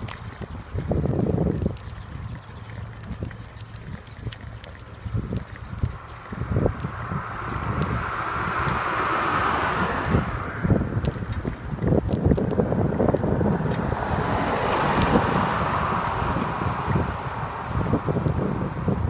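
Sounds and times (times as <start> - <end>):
wind buffeting microphone: 0.0 - 19.0
car passing: 5.7 - 19.0
small truck passing: 6.0 - 19.0.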